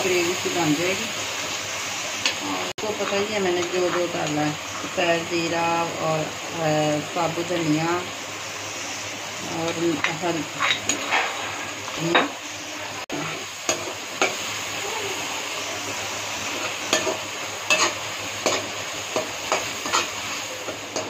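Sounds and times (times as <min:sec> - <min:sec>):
masala sizzling in a metal pan: 0:00.0 - 0:21.0
metal spoon scraping a pan: 0:10.0 - 0:11.8, 0:16.6 - 0:21.0.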